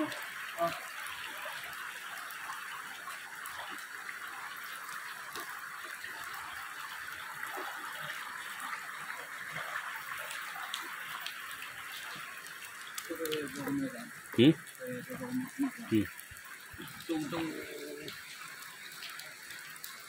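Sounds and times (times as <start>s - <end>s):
waterfall rushing: 13.1s - 18.4s.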